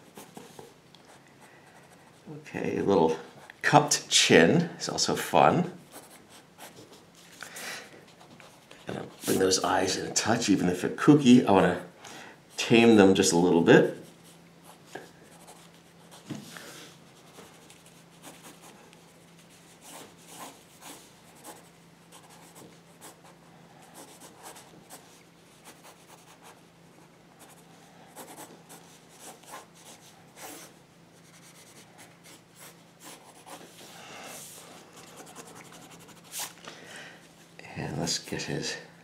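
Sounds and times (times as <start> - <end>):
pencil scratching on paper: 19.5 - 26.6, 27.4 - 33.8, 35.0 - 36.5.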